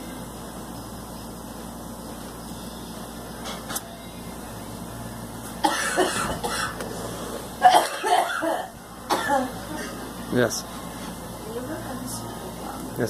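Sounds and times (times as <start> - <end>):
woman coughing: 5.6 - 6.8, 7.6 - 10.0.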